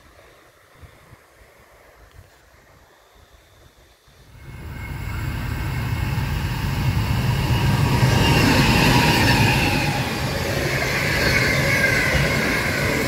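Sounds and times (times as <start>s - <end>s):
freight train wheels rumbling: 4.4s - 13.0s
thin high sliding tones: 4.4s - 13.0s.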